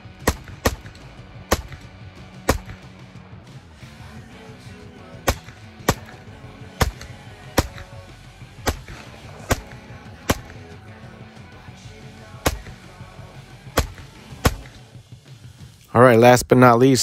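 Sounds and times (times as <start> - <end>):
carbine gunshots: 0.0 - 2.9, 5.1 - 10.9, 12.3 - 14.9
background music: 0.0 - 17.0.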